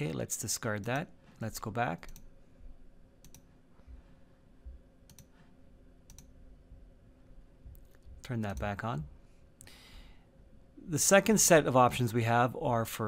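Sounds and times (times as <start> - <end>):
computer mouse clicks: 3.2 - 3.5, 5.1 - 5.4, 6.1 - 6.3.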